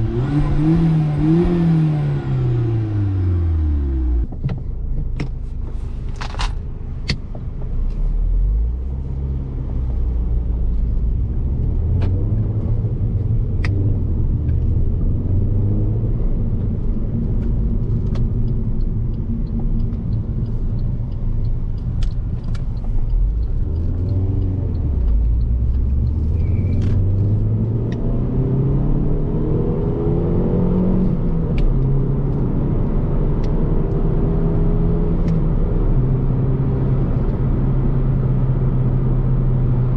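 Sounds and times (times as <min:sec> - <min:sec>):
car engine accelerating: 0:00.0 - 0:04.4, 0:07.5 - 0:39.9
tyre and road noise: 0:00.0 - 0:39.9.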